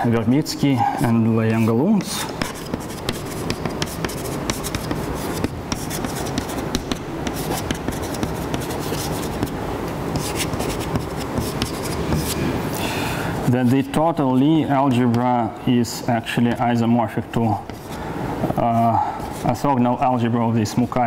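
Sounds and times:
chalk writing on blackboard: 0:01.4 - 0:12.5, 0:17.5 - 0:18.0.

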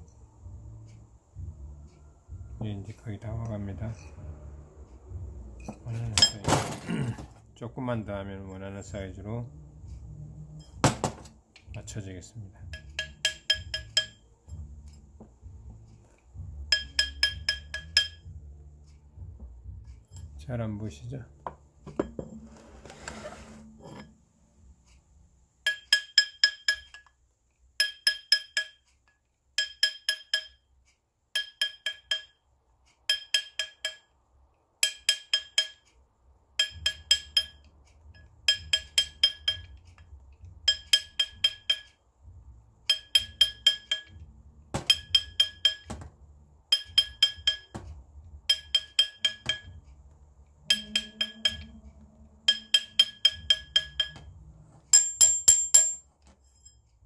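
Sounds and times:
hammer tapping metal ring: 0:12.6 - 0:15.4, 0:16.4 - 0:18.4, 0:21.4 - 0:22.4, 0:25.6 - 0:27.2, 0:27.8 - 0:30.7, 0:31.3 - 0:32.4, 0:33.0 - 0:34.2, 0:34.8 - 0:35.9, 0:36.6 - 0:56.9.

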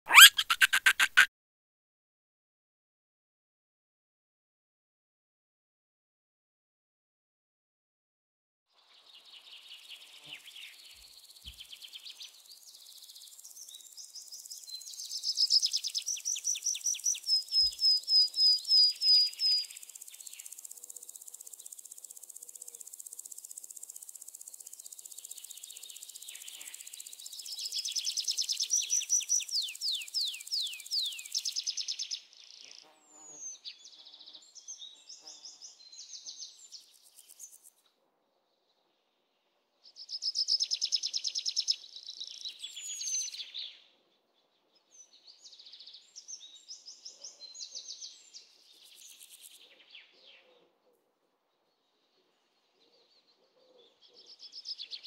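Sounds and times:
birds trilling: 0:00.1 - 0:01.3.

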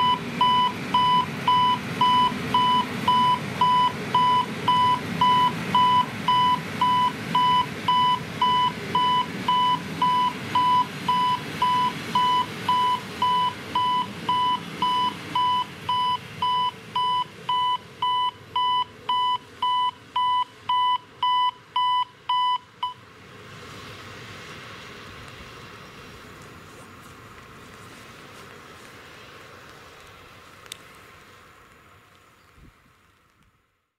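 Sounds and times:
level crossing warning beeps: 0:00.0 - 0:23.0.

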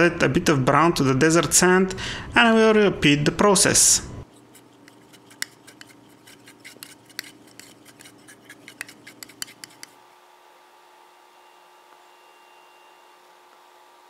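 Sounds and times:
brush clicking against plastic cup: 0:04.8 - 0:10.0.

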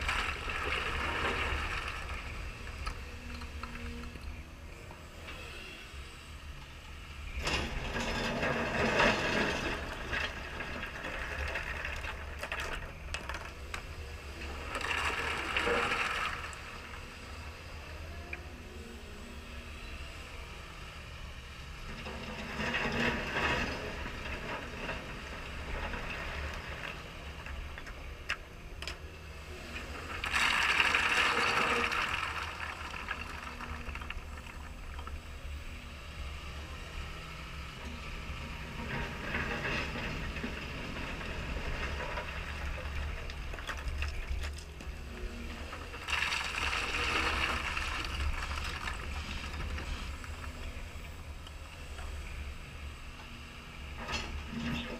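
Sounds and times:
excavator low rumble: 0:00.0 - 0:54.9
stones crunching and rattling: 0:30.1 - 0:35.1.

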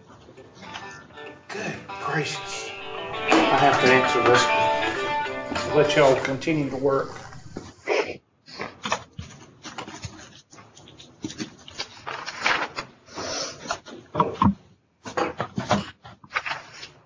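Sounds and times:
muffled vocal sounds: 0:01.5 - 0:07.7.

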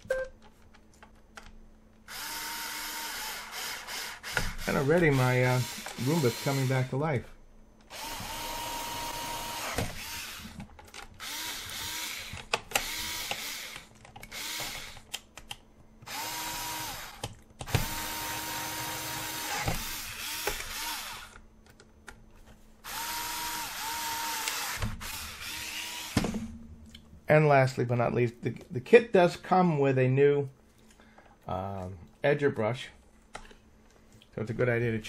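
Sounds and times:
cordless screwdriver whining: 0:02.1 - 0:06.9, 0:07.9 - 0:10.6, 0:11.2 - 0:15.1, 0:16.0 - 0:21.4, 0:22.8 - 0:26.2.

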